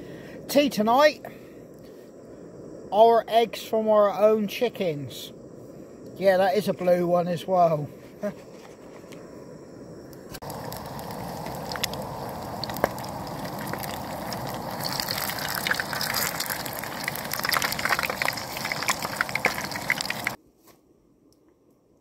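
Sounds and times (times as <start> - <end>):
eggs sizzling in oil: 10.4 - 20.4.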